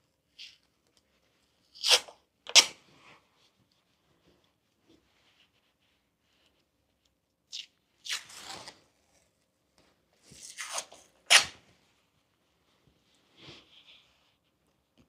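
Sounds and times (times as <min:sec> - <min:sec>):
adhesive tape ripping off roll: 0:01.7 - 0:02.8, 0:07.5 - 0:08.8, 0:10.4 - 0:11.6.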